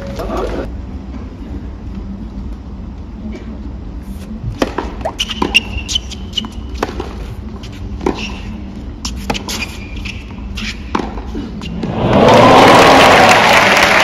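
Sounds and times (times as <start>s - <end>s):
stadium crowd hum: 6.0s - 14.0s
tennis racket hitting ball: 10.7s - 11.3s.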